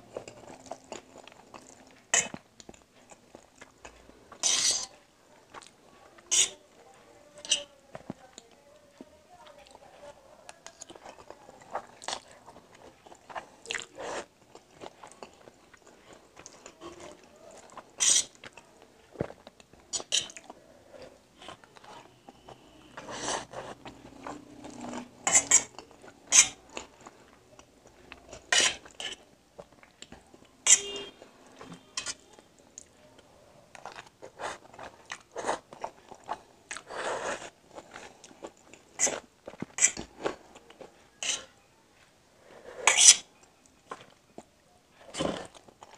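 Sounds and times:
chewing and mouth sounds: 0:00.0 - 0:04.5, 0:05.4 - 0:06.8, 0:10.5 - 0:41.5
fork clinking and scraping on metal plate: 0:04.4 - 0:05.0, 0:30.6 - 0:31.1, 0:31.7 - 0:32.2.

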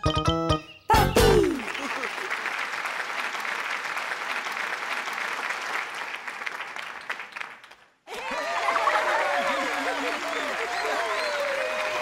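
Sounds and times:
audience applause: 0:01.4 - 0:12.0.

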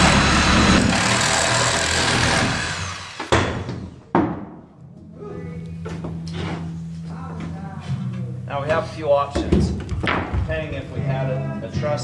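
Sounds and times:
reciprocating saw cutting wood: 0:00.0 - 0:03.3.

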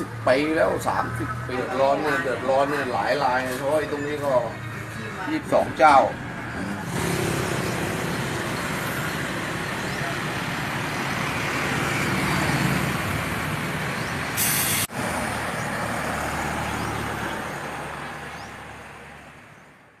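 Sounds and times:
passing cars and trucks: 0:00.0 - 0:20.0
short loud hiss: 0:14.4 - 0:14.9.

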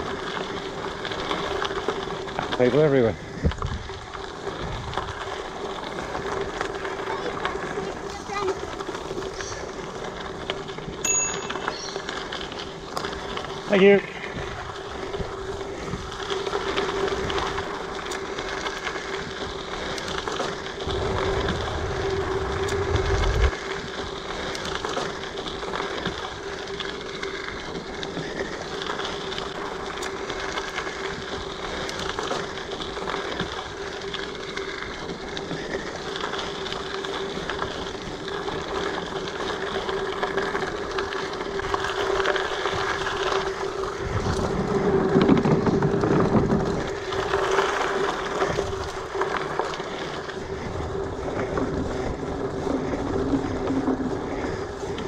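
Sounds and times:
mountain bike rolling on dirt: 0:00.0 - 0:55.0
wind buffeting microphone: 0:03.2 - 0:05.6, 0:14.3 - 0:24.8, 0:42.6 - 0:55.0.

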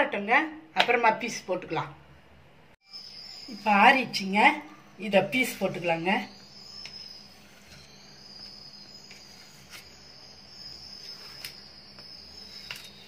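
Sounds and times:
high-pitched insect trill: 0:02.8 - 0:13.0.

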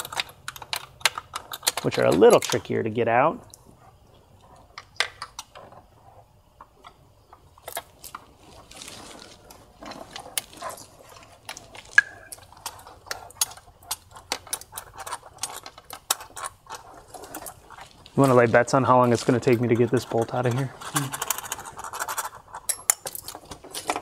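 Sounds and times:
metal tools clinking: 0:07.6 - 0:24.0.

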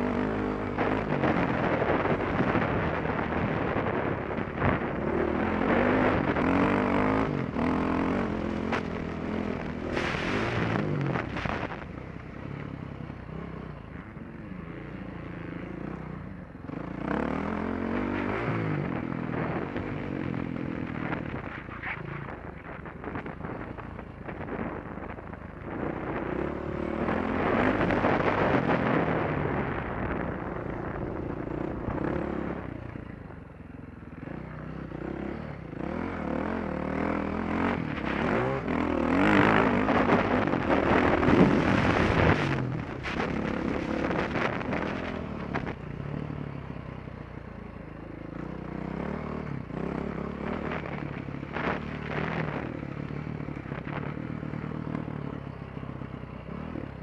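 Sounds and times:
wind noise on microphone: 0:00.0 - 0:13.9, 0:17.6 - 0:33.5, 0:35.5 - 0:46.6, 0:49.4 - 0:55.6
dirt bike engine revving: 0:04.6 - 0:11.7, 0:34.3 - 0:46.2.

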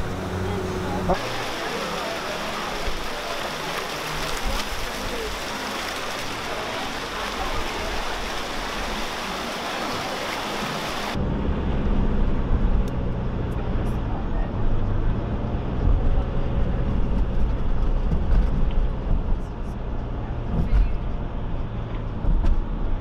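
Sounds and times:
fountain water splashing: 0:00.0 - 0:11.2
car engine and road noise: 0:00.0 - 0:23.0.

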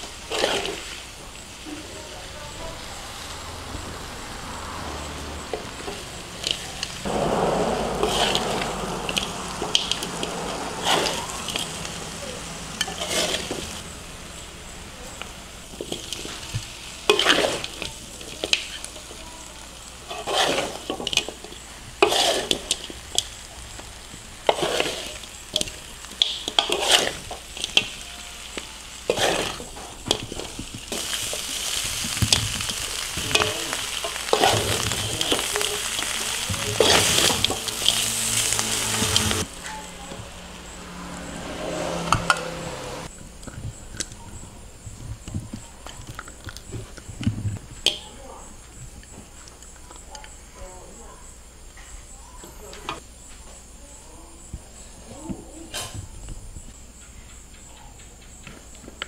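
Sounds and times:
spatula scraping a pan: 0:00.0 - 0:01.2, 0:05.5 - 0:19.2, 0:20.0 - 0:39.5
meat sizzling in a pan: 0:00.0 - 0:01.8, 0:02.8 - 0:39.6.

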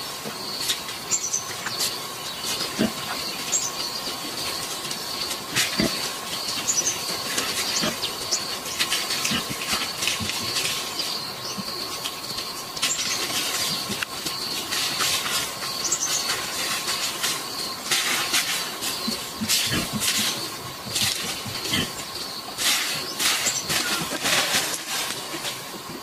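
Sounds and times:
bird chirping: 0:00.4 - 0:09.8, 0:10.4 - 0:24.1
broom sweeping concrete: 0:12.8 - 0:26.0.

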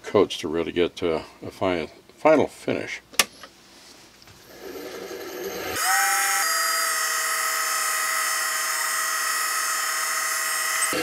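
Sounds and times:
wood lathe motor whining: 0:04.4 - 0:11.0.

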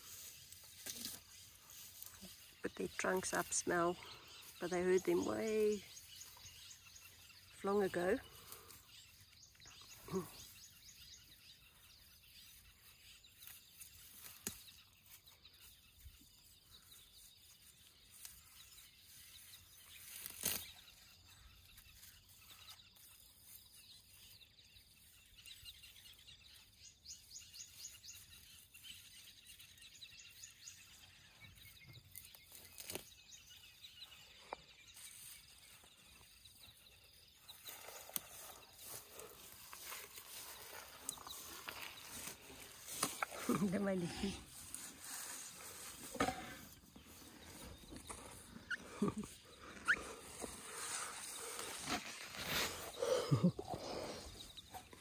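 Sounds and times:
elephant tearing grass and chewing: 0:00.0 - 0:02.5, 0:13.3 - 0:15.2, 0:18.0 - 0:21.1, 0:32.0 - 0:33.4, 0:37.5 - 0:49.0, 0:49.6 - 0:53.1.

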